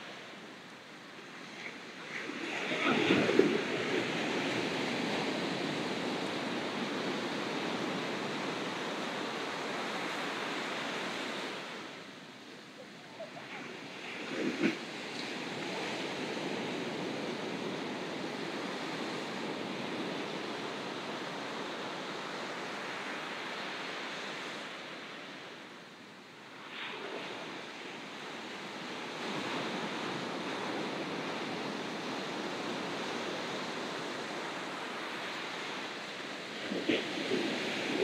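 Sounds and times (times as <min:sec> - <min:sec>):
ocean surf washing onto beach: 0:00.0 - 0:38.0.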